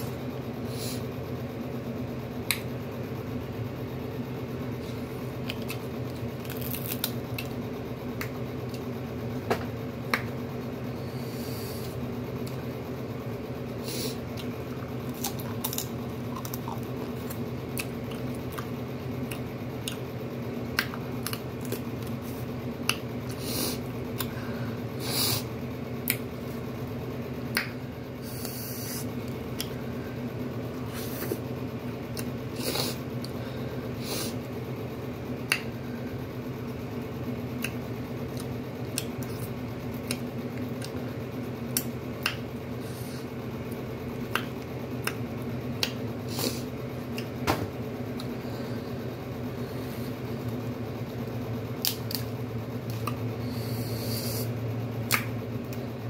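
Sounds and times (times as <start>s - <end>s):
steady low hum: 0.0s - 56.0s
crab shells cracking: 6.4s - 7.4s.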